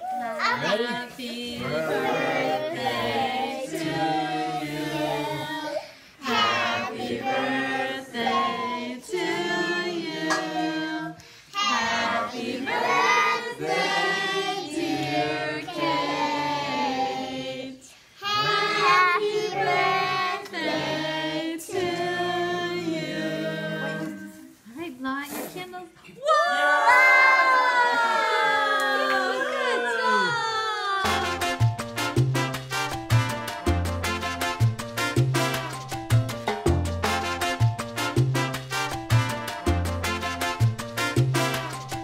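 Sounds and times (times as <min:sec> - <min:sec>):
group of voices singing: 0:00.6 - 0:24.5.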